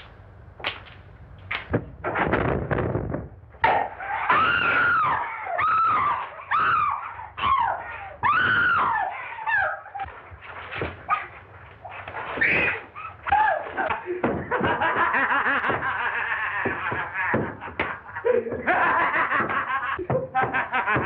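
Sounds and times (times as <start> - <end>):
struggle knocks: 0.6 - 4.9, 12.0 - 21.0
women screaming: 3.8 - 10.1, 12.4 - 13.9.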